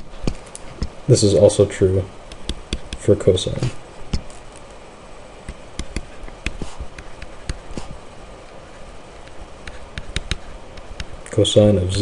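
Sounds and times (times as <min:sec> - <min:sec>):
faint steady hiss: 0:00.0 - 0:12.0
stylus tapping on tablet screen: 0:02.3 - 0:03.1, 0:05.5 - 0:08.0, 0:09.3 - 0:11.1.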